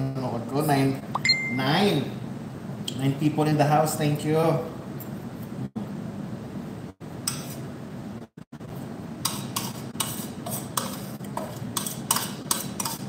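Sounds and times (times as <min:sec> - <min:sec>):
low steady hum: 0:00.0 - 0:09.2.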